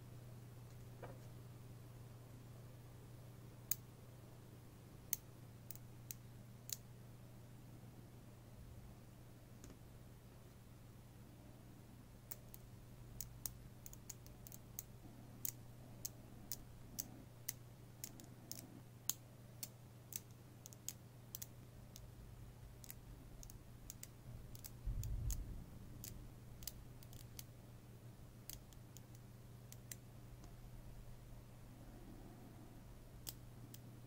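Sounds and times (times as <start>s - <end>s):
faint low hum: 0.0s - 34.0s
magnet balls clicking: 13.2s - 22.1s, 22.8s - 27.5s, 28.4s - 30.6s.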